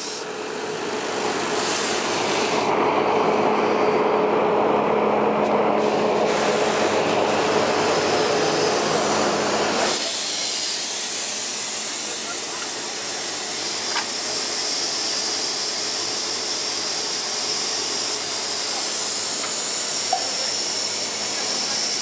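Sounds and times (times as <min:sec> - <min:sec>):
steam locomotive running gear clanking: 0:05.8 - 0:22.0.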